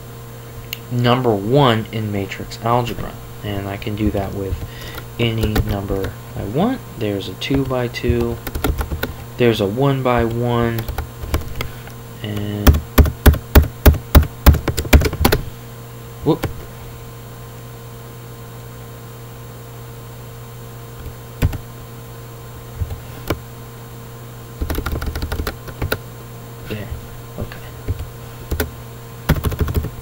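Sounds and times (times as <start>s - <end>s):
keyboard typing: 4.5s - 6.2s, 7.5s - 9.3s, 10.2s - 15.4s, 21.0s - 21.6s, 24.6s - 26.0s, 27.8s - 28.7s, 29.3s - 30.0s.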